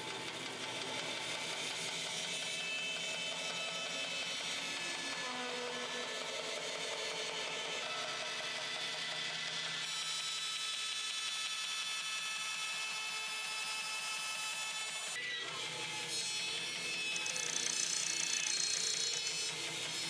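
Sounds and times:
bandsaw cutting leather: 0.0 - 9.2, 9.8 - 20.0.

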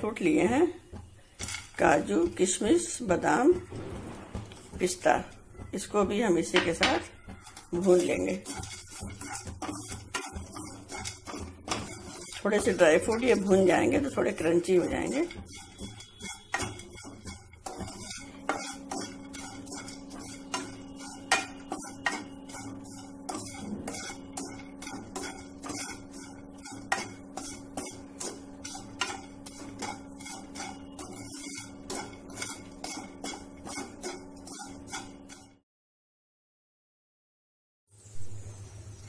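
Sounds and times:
wooden spatula scraping a pan: 0.0 - 35.6.

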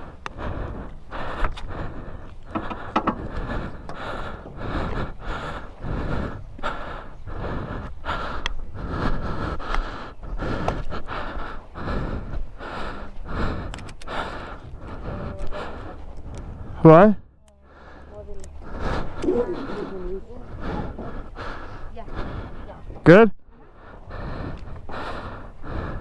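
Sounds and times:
person breathing hard: 0.0 - 16.9, 17.6 - 26.0
sharp clicks: 13.6 - 14.1.

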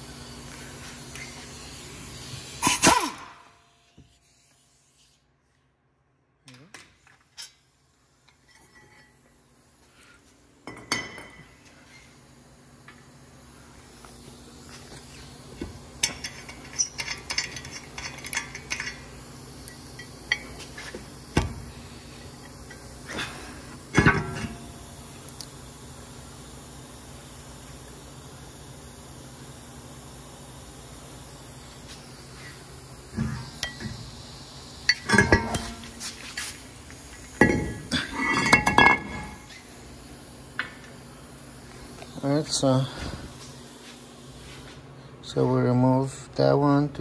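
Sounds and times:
metal tools clinking: 16.0 - 19.1, 34.9 - 35.9, 37.4 - 39.6.

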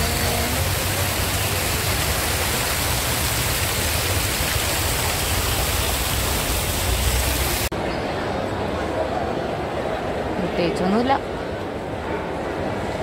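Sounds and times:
fountain water splashing: 0.0 - 7.7.

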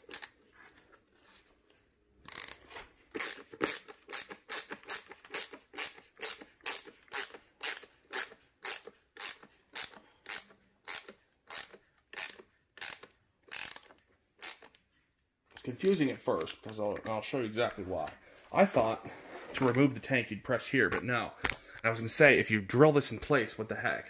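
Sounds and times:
screwdriver scraping creak: 0.0 - 0.4, 2.2 - 14.8.

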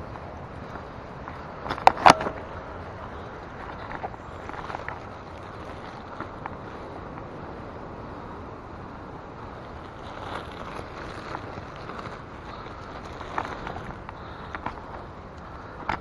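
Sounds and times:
faint ticks: 10.2 - 16.0.

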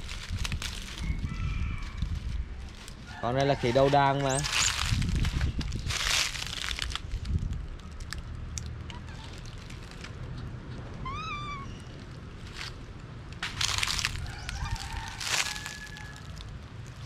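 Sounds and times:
dry leaves rustling and crunching: 0.0 - 10.3, 11.7 - 17.0.

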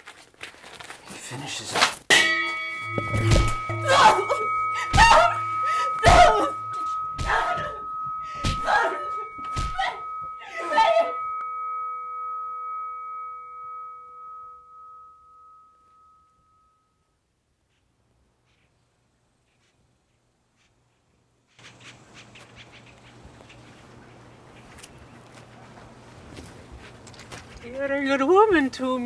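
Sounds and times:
heavy hits: 2.1 - 13.4
ringing bell-like tone: 2.1 - 17.2.

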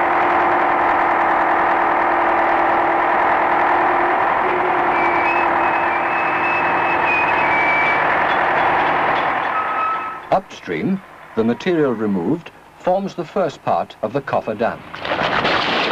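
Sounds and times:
excavator machinery drone: 0.0 - 15.9
high machinery squeal: 3.8 - 10.4.

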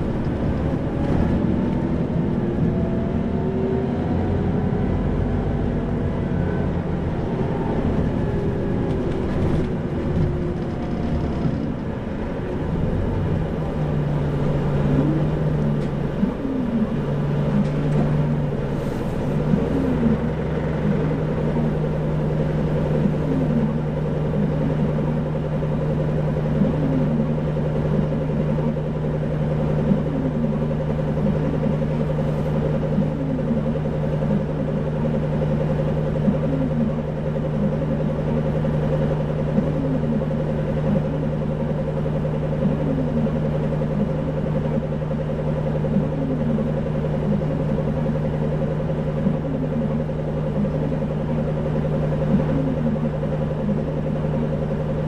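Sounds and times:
bus diesel engine hum: 0.0 - 55.0.

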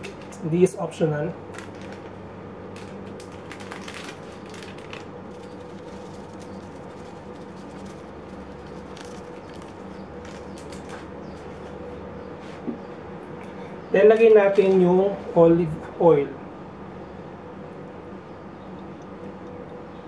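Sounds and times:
steady low hum: 0.0 - 20.0
seasoning packet shaken: 1.5 - 11.0.

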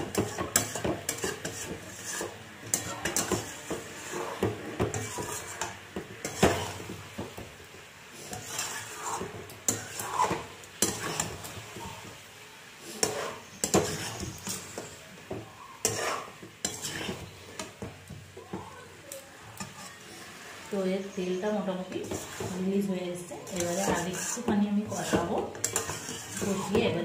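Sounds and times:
spatula scraping metal pot: 0.0 - 7.0, 8.1 - 12.1, 12.8 - 15.0, 15.7 - 18.0, 19.4 - 27.0
soft sizzle of frying: 0.0 - 27.0.

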